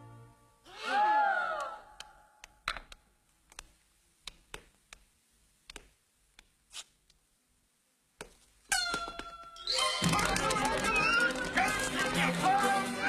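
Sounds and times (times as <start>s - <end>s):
light irregular clicks and taps: 2.4s - 7.2s.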